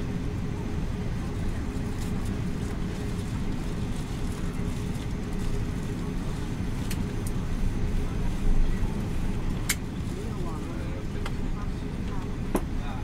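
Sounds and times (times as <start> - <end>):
aircraft cabin engine rumble: 0.0 - 13.0
faint steady hum: 0.0 - 13.0.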